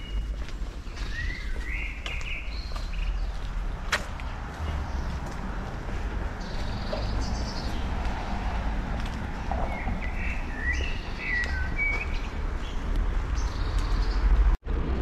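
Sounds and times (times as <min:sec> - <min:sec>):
birds chirping: 0:00.0 - 0:14.5
steady low rumble: 0:14.4 - 0:15.0.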